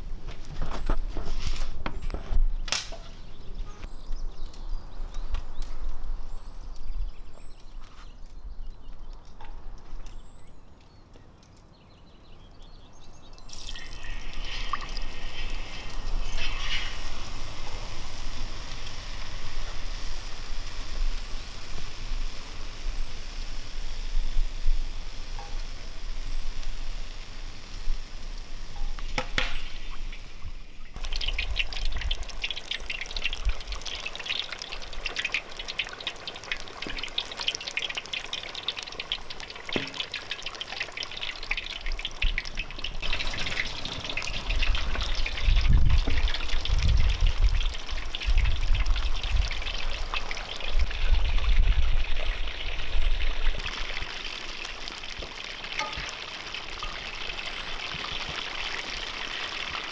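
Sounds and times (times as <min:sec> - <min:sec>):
chicken sizzling in hot oil: 0:13.5 - 0:59.9.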